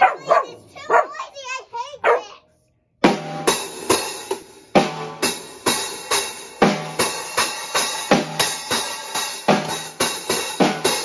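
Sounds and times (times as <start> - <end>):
drum strikes: 3.0 - 11.0.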